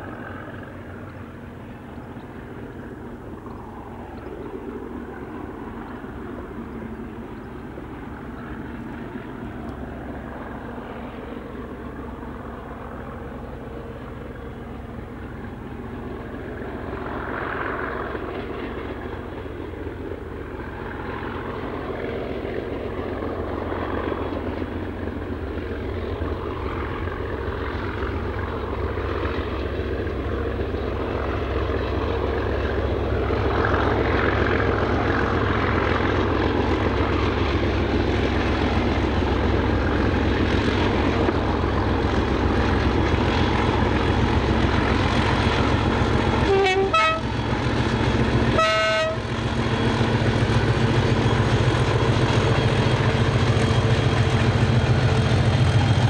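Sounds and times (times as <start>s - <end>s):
diesel locomotive engine: 0.0s - 56.0s
train horn blasts: 46.4s - 47.4s, 48.5s - 49.3s.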